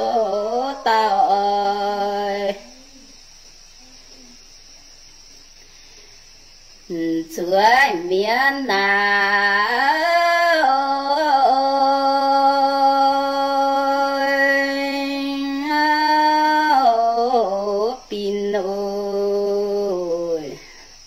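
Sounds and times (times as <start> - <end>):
woman singing unaccompanied: 0.0 - 3.4, 6.8 - 21.0
woman breathing: 5.5 - 6.5.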